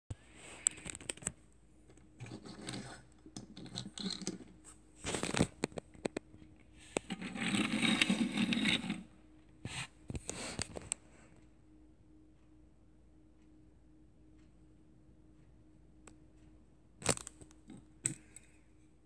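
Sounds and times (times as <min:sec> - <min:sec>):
toy van wheels scraping tabletop: 0:06.8 - 0:09.1.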